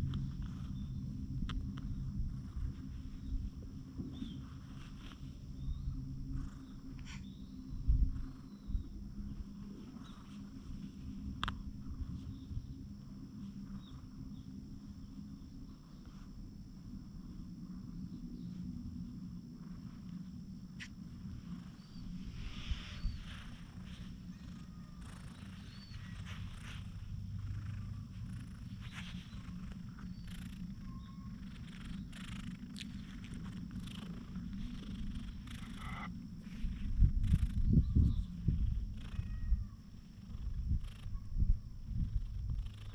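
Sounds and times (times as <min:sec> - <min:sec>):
cat purring: 0:00.0 - 0:42.9
steady low rumble: 0:00.0 - 0:42.9
hand rustling in fur: 0:20.8 - 0:38.3.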